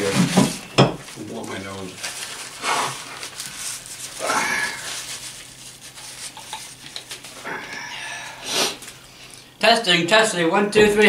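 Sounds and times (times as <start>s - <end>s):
man blowing his nose: 2.6s - 3.1s, 4.2s - 5.2s, 7.4s - 8.9s.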